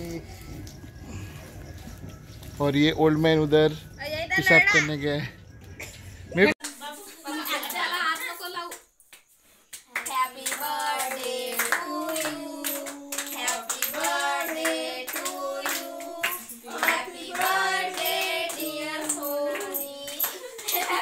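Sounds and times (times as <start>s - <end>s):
hand clapping: 7.6s - 21.0s.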